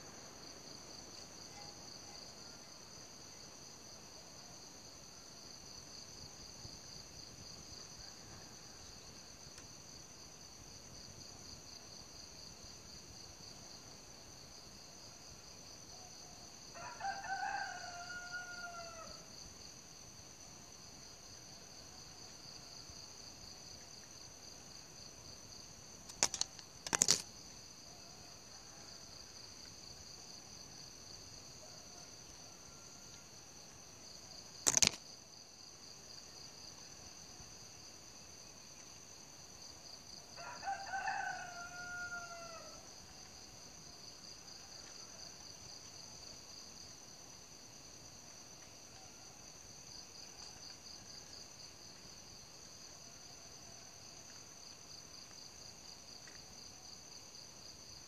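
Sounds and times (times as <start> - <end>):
crickets chirping: 0.0 - 58.0
rooster crowing: 16.7 - 19.2, 40.4 - 42.8.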